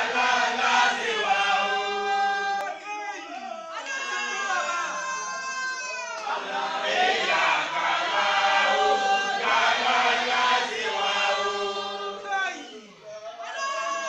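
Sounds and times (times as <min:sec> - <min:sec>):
men chanting in unison: 0:00.0 - 0:02.6, 0:06.3 - 0:12.3.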